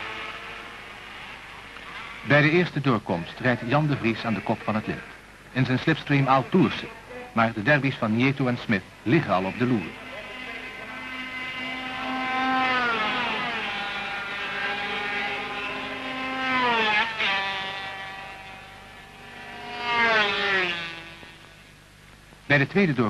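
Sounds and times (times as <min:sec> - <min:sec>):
racing motorcycles passing: 0:00.0 - 0:21.8.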